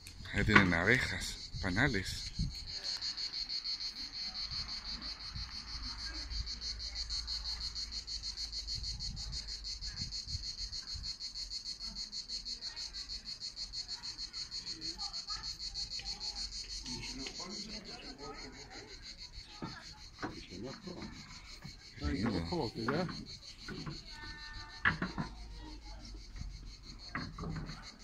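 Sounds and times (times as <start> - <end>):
insects chirring: 0.0 - 28.0.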